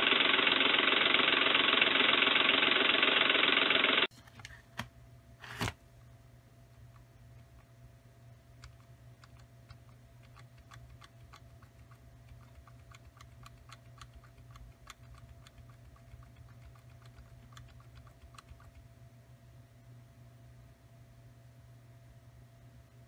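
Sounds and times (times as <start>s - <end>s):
low steady hum: 4.0s - 23.0s
computer keys clicking: 8.6s - 18.8s.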